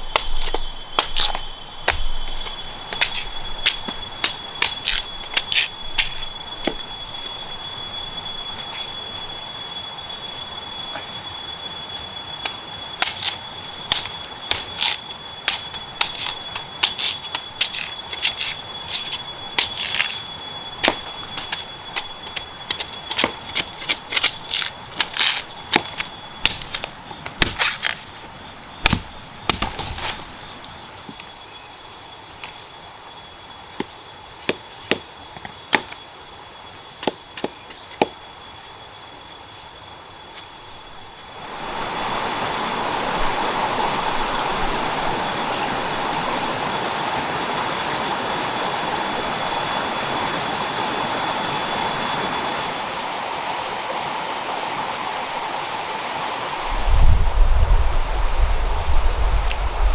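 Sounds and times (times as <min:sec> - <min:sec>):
machete chopping bamboo: 0:00.0 - 0:02.1, 0:13.0 - 0:20.1, 0:22.7 - 0:28.0, 0:28.8 - 0:30.1
high-pitched whine: 0:00.0 - 0:59.9.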